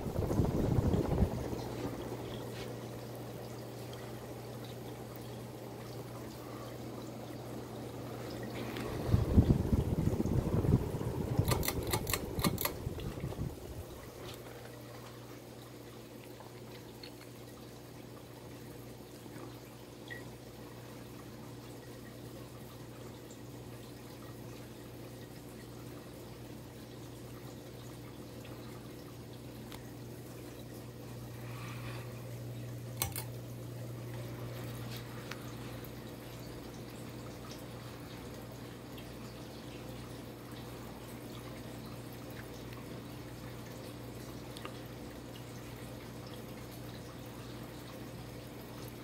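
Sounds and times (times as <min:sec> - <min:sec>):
rush of air from fan blades: 0:00.0 - 0:02.9, 0:08.0 - 0:14.2
fan motor low hum: 0:00.0 - 0:49.0
pull-chain switch clicks: 0:11.4 - 0:12.8, 0:33.0 - 0:33.3.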